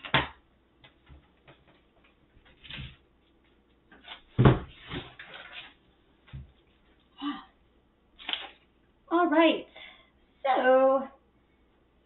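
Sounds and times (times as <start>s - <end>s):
loud thump: 4.4s - 4.8s.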